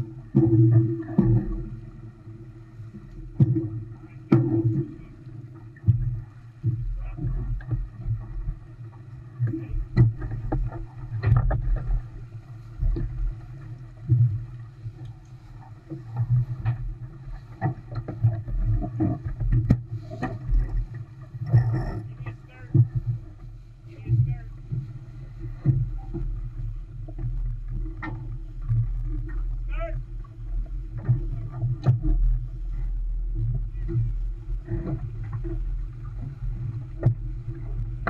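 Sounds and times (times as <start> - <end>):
water rushing along boat hull: 0.0 - 38.0.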